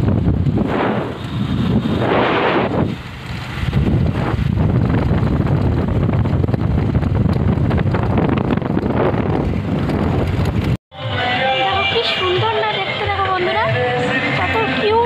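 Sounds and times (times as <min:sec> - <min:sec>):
wind buffeting microphone: 0:00.0 - 0:10.8.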